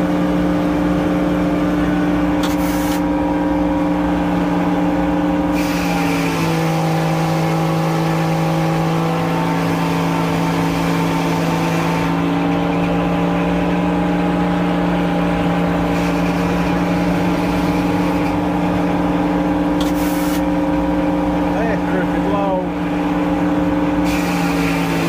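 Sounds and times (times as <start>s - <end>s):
sawmill engine running: 0.0s - 25.0s.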